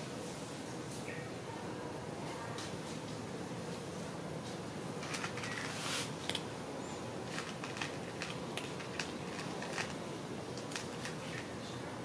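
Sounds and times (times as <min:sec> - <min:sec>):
cat crunching dry kibble: 0:05.0 - 0:06.5, 0:07.1 - 0:11.5
background hiss: 0:05.6 - 0:07.3.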